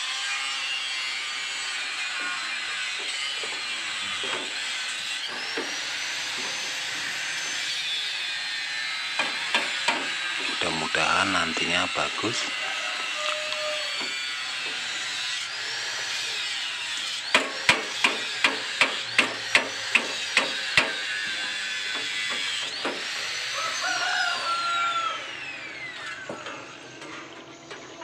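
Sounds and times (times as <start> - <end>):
power tool whine: 0.0 - 28.0
sharp metal knocks: 17.3 - 21.0.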